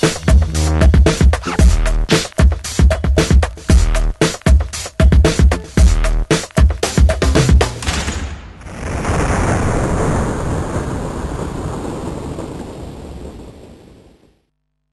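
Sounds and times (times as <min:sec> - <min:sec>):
music with a steady beat: 0:00.0 - 0:07.8.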